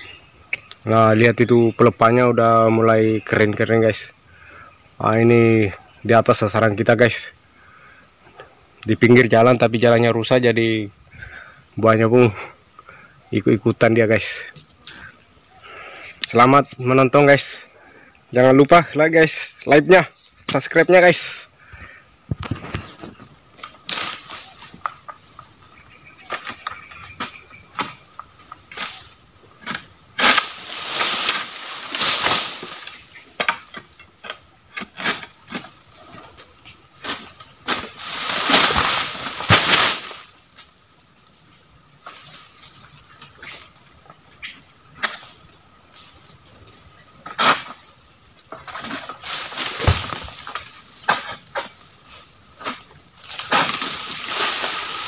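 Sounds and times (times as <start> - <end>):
high-pitched insect drone: 0.0 - 55.0
rustling bursts: 30.2 - 33.0, 37.0 - 40.3, 53.2 - 55.0.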